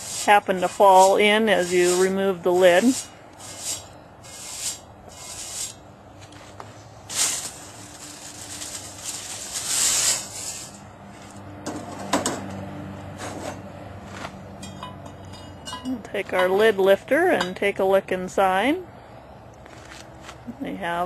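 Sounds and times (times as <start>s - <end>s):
whisk broom sweeping ash off metal: 0.0s - 5.8s, 7.1s - 10.8s.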